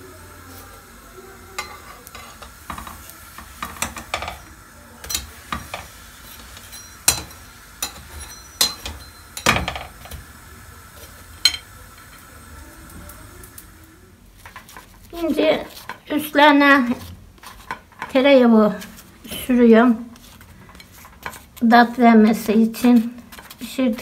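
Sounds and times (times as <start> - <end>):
food sizzling in oil: 0.0 - 24.0
metal tongs scraping a pan: 1.5 - 10.2, 14.4 - 24.0.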